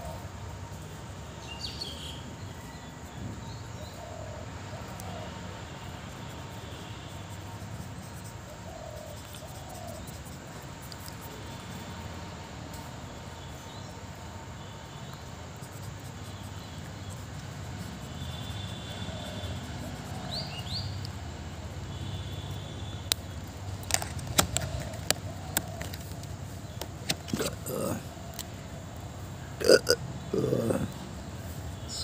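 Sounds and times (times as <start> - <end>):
faint bird chirps: 0.9 - 4.2.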